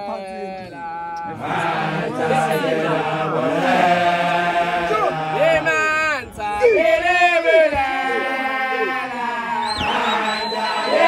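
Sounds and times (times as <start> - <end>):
group of voices chanting: 1.2 - 11.0
man chanting: 4.7 - 9.6.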